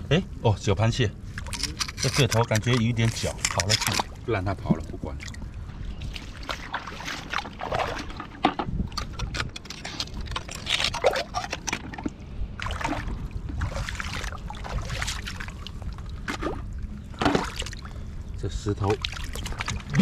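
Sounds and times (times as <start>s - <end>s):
low steady rumble: 0.0s - 20.0s
seawater sloshing and splashing: 1.2s - 20.0s
short clicks and scrapes: 1.4s - 4.1s.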